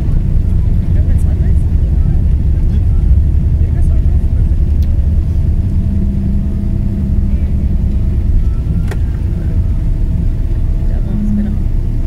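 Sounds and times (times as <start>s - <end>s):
jet engines and wheels rumbling: 0.0s - 12.0s.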